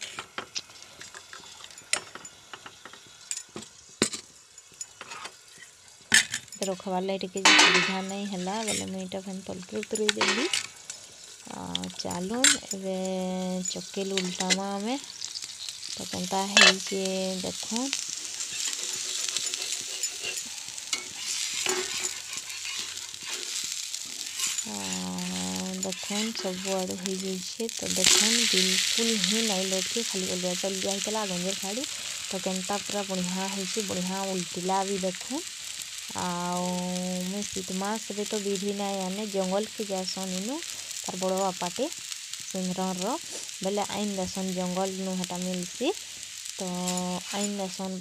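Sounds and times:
metal utensils and pan clicking: 0.0s - 9.0s, 9.6s - 11.0s, 11.7s - 17.0s, 18.1s - 33.0s
spatula scraping a pan: 5.0s - 5.8s, 18.1s - 26.9s.

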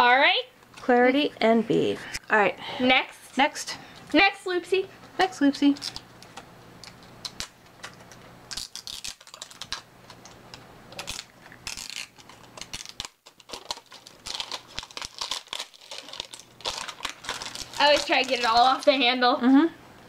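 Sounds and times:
plastic wrapping crinkling: 5.6s - 19.2s.

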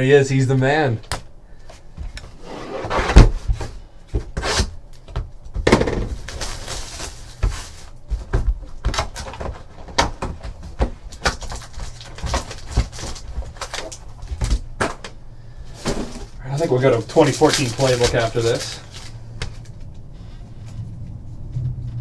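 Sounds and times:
rustling wrapper and cardboard: 5.9s - 21.9s.

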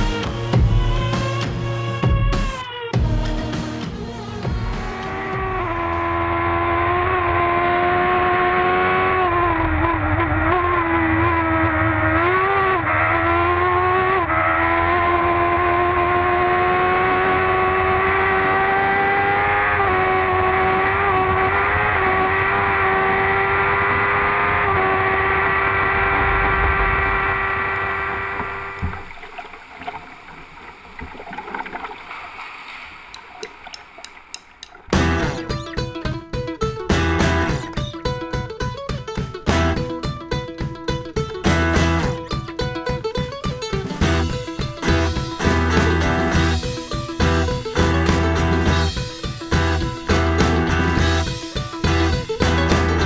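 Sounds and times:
race car engine at high revs: 4.3s - 28.9s.

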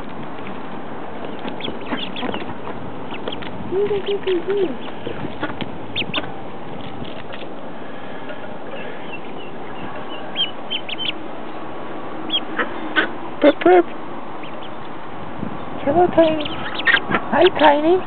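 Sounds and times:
ducklings peeping: 0.0s - 15.0s, 15.6s - 18.0s
lower duckling calls: 1.2s - 6.3s, 8.8s - 11.2s, 12.2s - 15.0s, 16.2s - 17.6s.

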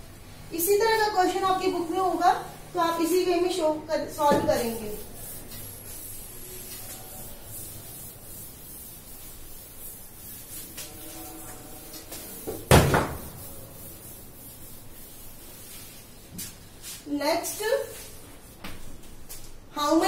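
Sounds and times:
chalkboard being wiped: 4.2s - 19.6s.

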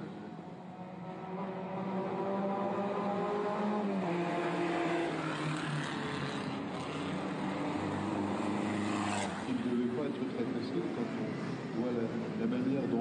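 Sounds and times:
racing car engine passing: 0.8s - 9.8s.

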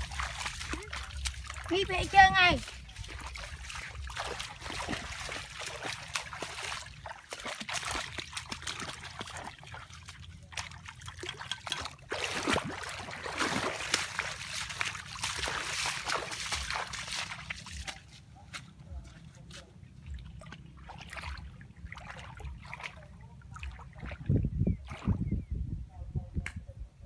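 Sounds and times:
stream water trickling: 0.0s - 18.2s, 19.9s - 25.2s
footsteps wading through water: 0.0s - 25.3s
brushing through wet vegetation: 12.1s - 23.0s.

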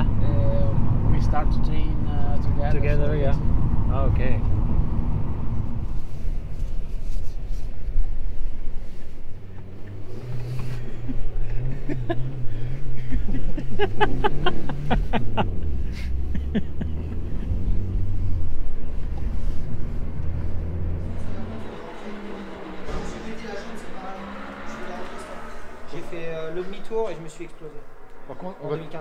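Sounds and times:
car engine: 0.0s - 29.0s
road noise: 0.0s - 29.0s.

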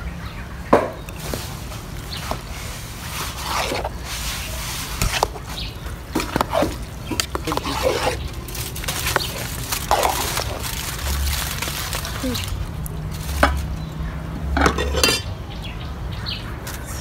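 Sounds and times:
spoon scraping rice in pot: 2.2s - 10.6s.

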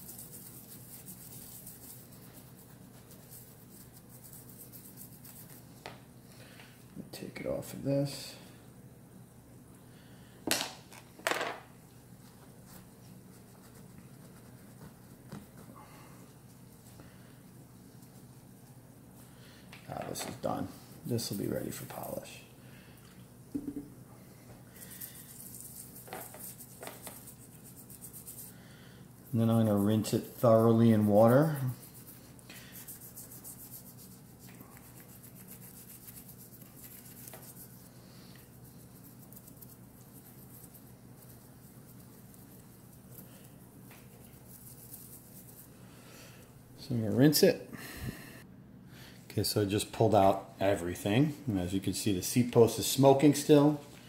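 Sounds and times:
cloth rag rubbing metal: 0.0s - 5.7s, 29.3s - 38.0s
toothbrush scrubbing metal: 0.0s - 5.7s, 24.8s - 28.6s, 29.2s - 43.4s.

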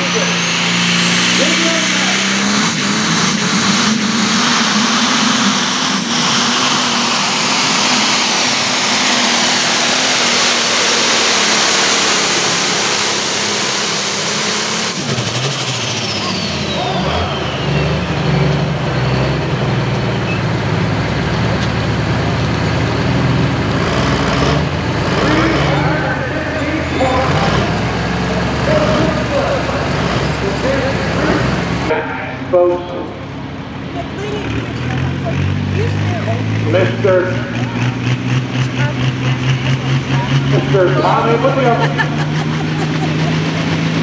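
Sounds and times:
high turbo whine: 0.0s - 44.0s
tractor engine at full throttle: 0.0s - 44.0s.

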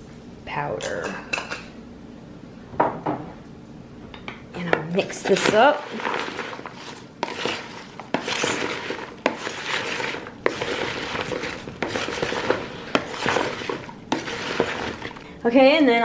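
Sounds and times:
leafy greens rustling: 5.0s - 15.3s.

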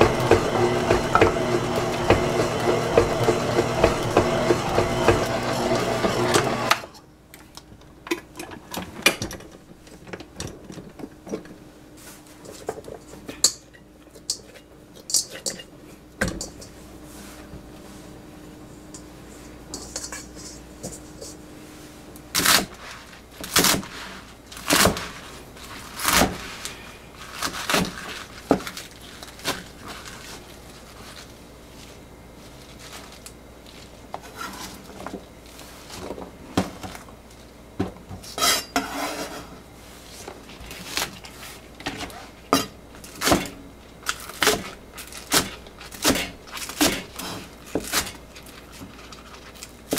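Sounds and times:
clatter of kitchenware: 12.4s - 16.8s, 19.7s - 21.4s.

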